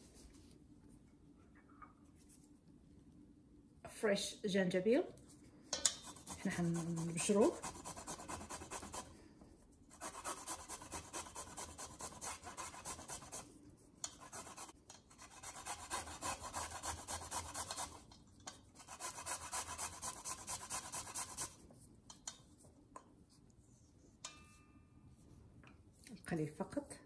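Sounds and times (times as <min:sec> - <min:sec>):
ginger scraping on a grater: 0:06.0 - 0:09.1, 0:14.1 - 0:18.0, 0:18.8 - 0:21.6.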